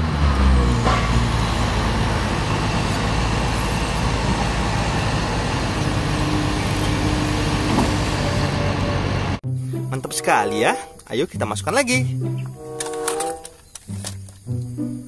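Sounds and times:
forklift diesel engine running: 0:00.0 - 0:09.4.

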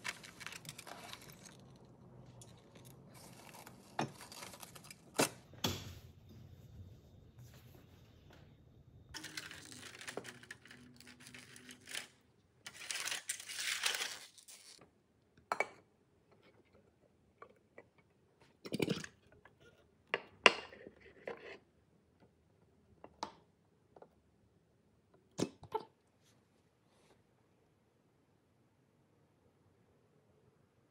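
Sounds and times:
aluminium foil crinkling and tearing: 0:00.0 - 0:05.2, 0:09.2 - 0:14.8.

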